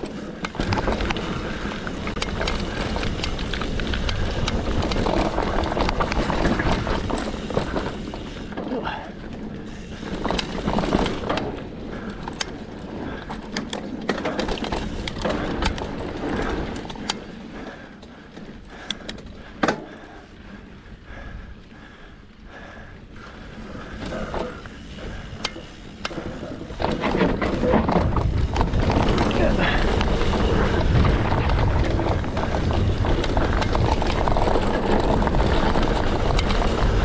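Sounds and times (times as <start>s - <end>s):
bike chain and parts rattling: 0.0s - 21.2s, 23.1s - 37.0s
bike tyres on dirt: 0.0s - 37.0s
wind on microphone: 27.0s - 37.0s.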